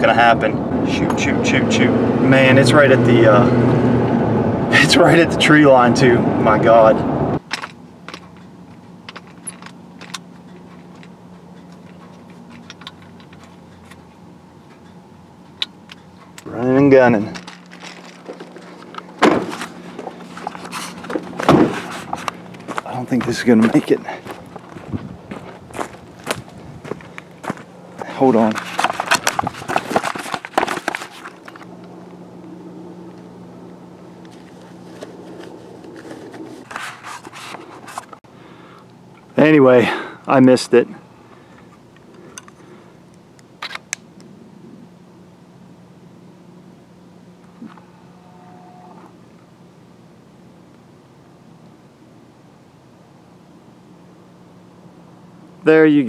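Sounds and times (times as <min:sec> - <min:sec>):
low steady hum: 0:00.0 - 0:56.0
camera handling rustling: 0:17.4 - 0:22.8, 0:28.5 - 0:31.7, 0:34.2 - 0:38.2.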